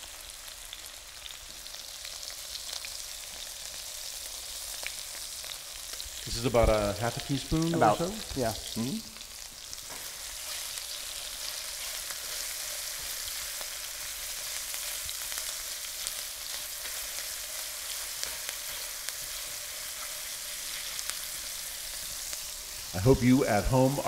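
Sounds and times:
vegetables sizzling in skillet: 0.0 - 24.0.

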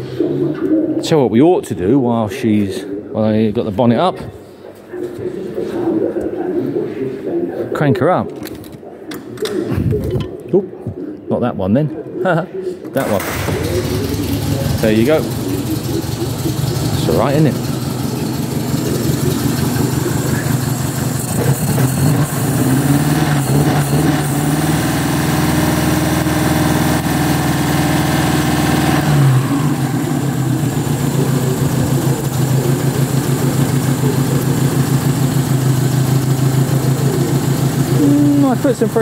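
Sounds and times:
car engine running: 13.2 - 39.0.

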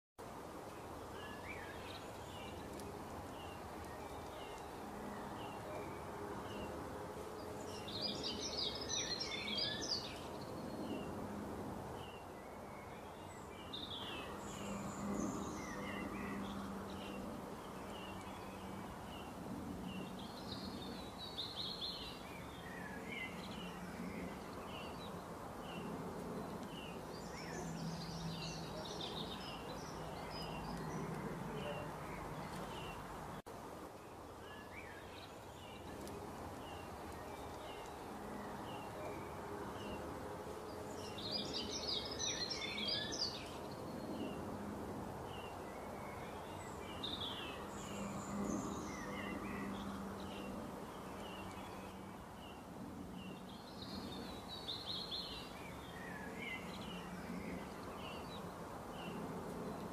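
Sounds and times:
birds chirping and singing: 7.6 - 11.1, 40.9 - 44.4.

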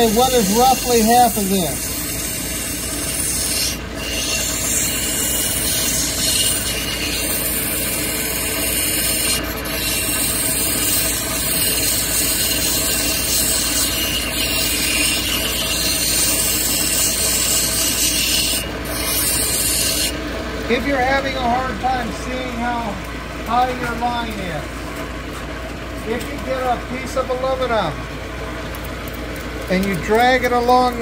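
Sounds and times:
stone grinding on wheel: 0.0 - 20.2
low motor hum: 0.0 - 31.0.

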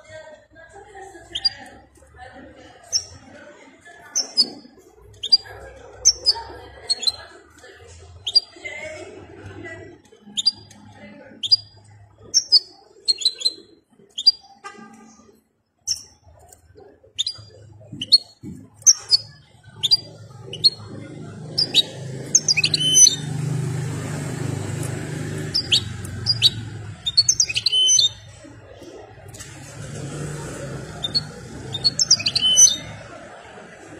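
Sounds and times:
bird singing high twittering notes: 4.2 - 7.2, 10.3 - 10.8, 11.4 - 14.6, 17.2 - 23.7, 24.4 - 28.4, 30.9 - 33.0.

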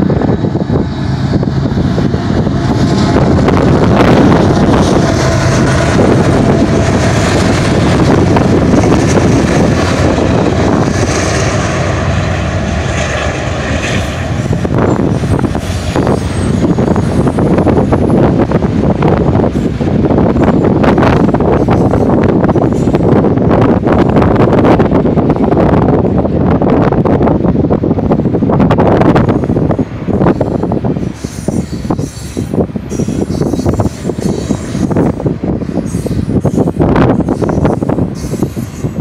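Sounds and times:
diesel locomotive passing: 0.0 - 39.0
freight train wheels rolling: 0.0 - 39.0
wind buffeting microphone: 0.0 - 39.0.

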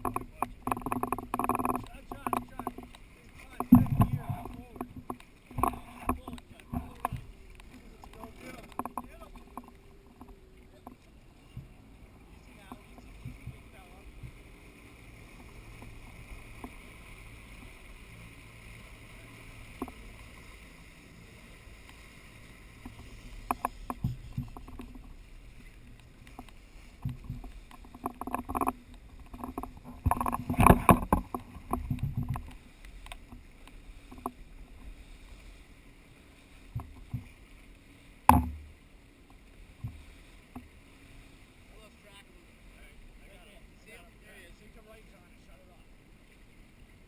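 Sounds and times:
muffled knocks and thumps: 0.0 - 11.7, 12.6 - 14.4, 22.8 - 25.2, 26.2 - 33.4, 38.2 - 38.8, 39.8 - 40.7.

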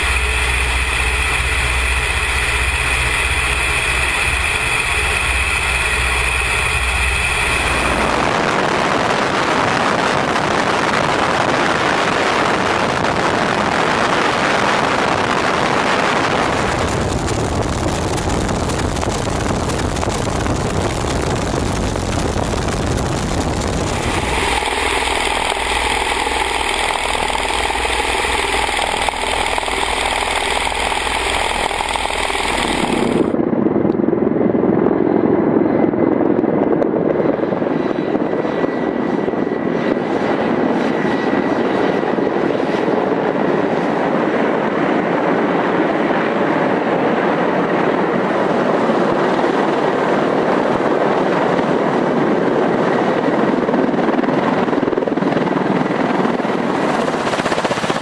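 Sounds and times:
faint steady whine: 0.0 - 33.4
helicopter engine: 0.0 - 58.0
helicopter rotor noise: 0.0 - 58.0.

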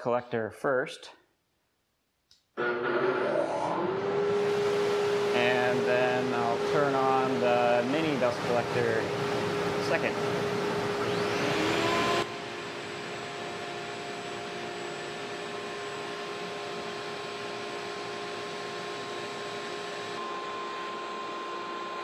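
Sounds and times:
dust collectors running: 2.6 - 18.3.

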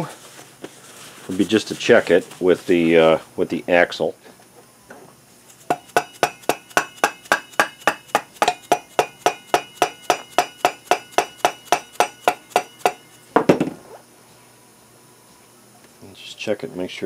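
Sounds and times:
metal axle knocking in wheel hub: 5.5 - 13.2.

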